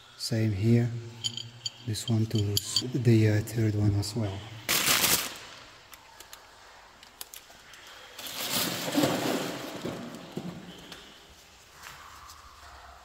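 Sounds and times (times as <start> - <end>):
metal knocking and rattling: 1.2 - 3.0.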